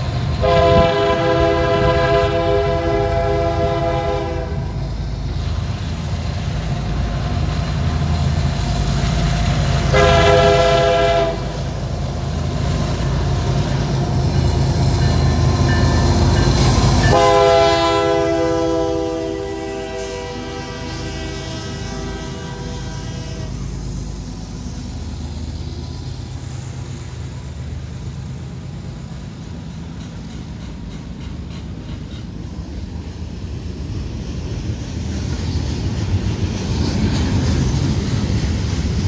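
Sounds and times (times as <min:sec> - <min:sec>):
locomotive engines and wheels rumbling: 0:00.0 - 0:39.0
train air horn: 0:00.4 - 0:04.8, 0:09.9 - 0:11.6, 0:17.0 - 0:23.7.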